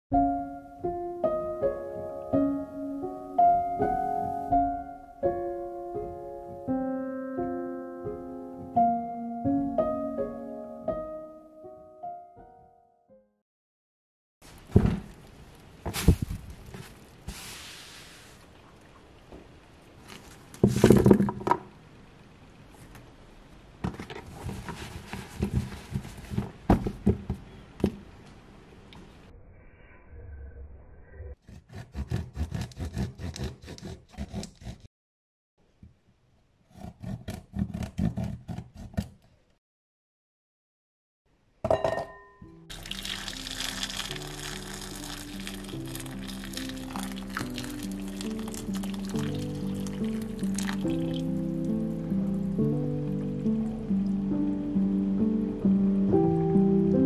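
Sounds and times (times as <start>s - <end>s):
slow solo piano: 0.1s - 12.8s
cloth rustling: 24.1s - 27.0s.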